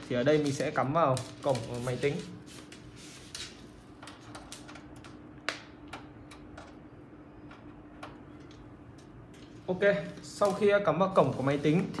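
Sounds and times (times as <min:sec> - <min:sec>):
faint steady hum: 0:02.5 - 0:12.0.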